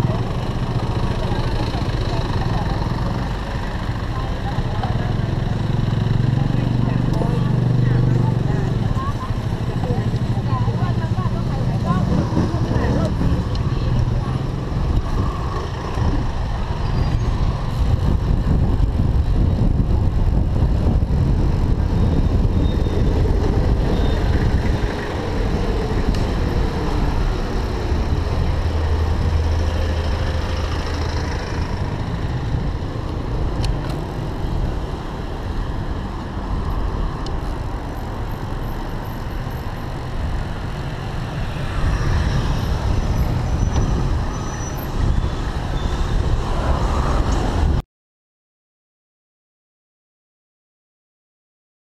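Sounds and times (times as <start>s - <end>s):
motor vehicles running: 0.0s - 47.8s
wind rumble on microphone: 7.0s - 38.5s, 39.6s - 47.8s.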